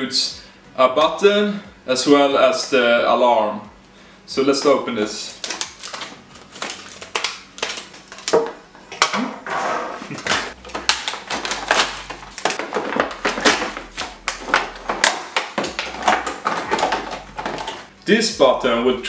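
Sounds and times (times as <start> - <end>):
packaging crinkling and clicking: 5.2 - 9.2, 10.1 - 17.9.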